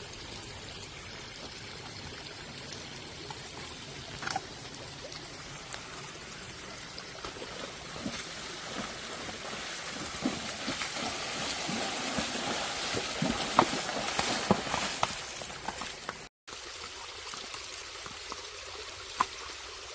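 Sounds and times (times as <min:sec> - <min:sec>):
rushing water: 0:00.0 - 0:19.9
hooves splashing in water: 0:06.8 - 0:16.3.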